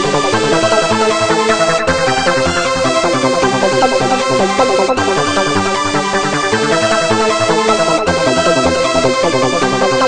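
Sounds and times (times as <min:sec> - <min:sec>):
pulsing bass beat: 0:00.0 - 0:05.9
held synth notes: 0:00.0 - 0:06.9.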